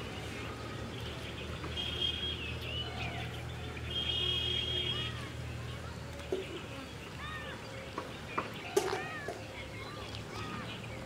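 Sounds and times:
birds whistling and chirping: 0.1s - 11.0s.

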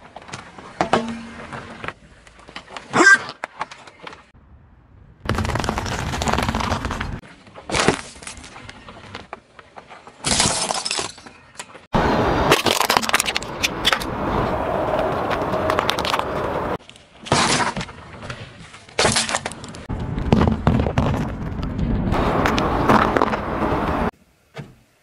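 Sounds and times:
tyre crushing objects: 5.3s - 9.3s.

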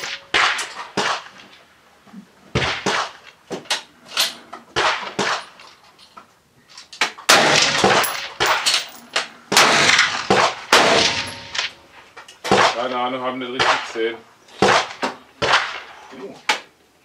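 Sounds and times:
rifle shots echoing: 0.0s - 1.4s, 7.3s - 11.9s, 14.6s - 15.9s.

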